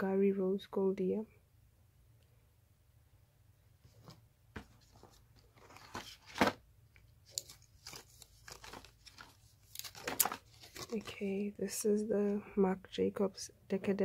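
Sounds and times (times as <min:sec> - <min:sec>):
cardboard crunch: 0:03.9 - 0:06.6, 0:07.3 - 0:11.2
paper cards rustling and clicking: 0:03.9 - 0:11.5.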